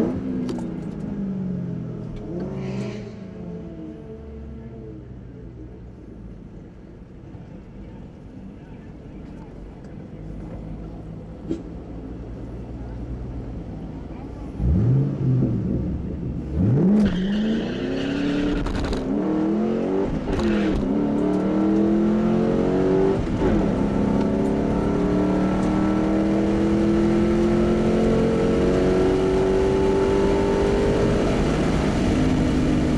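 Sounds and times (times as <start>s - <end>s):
car engine revving through gears: 14.6s - 32.9s.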